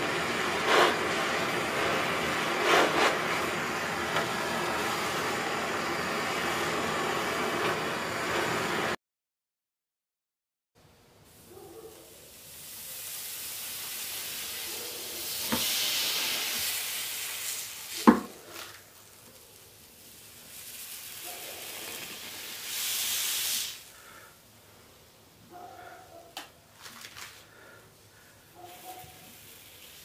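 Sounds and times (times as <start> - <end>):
hot metal sizzling and hissing: 0.0 - 9.0, 11.3 - 24.6, 28.7 - 30.0.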